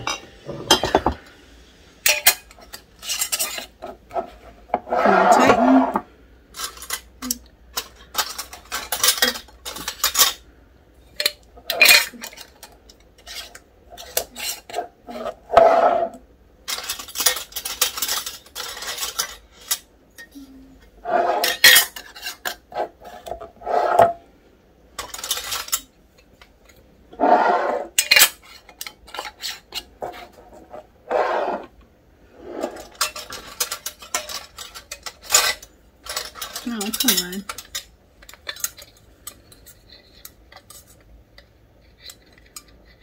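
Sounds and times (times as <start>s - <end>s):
metal lids clinking on glass jars: 2.0s - 4.0s, 6.5s - 10.4s, 11.1s - 15.4s, 16.7s - 20.4s, 21.4s - 23.4s, 25.0s - 25.9s, 32.6s - 41.0s.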